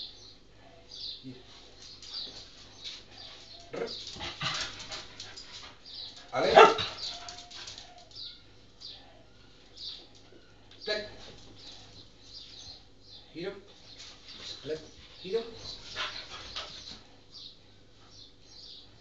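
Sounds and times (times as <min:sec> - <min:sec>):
dog yelping: 0:06.3 - 0:08.0
dog barking: 0:06.4 - 0:07.2.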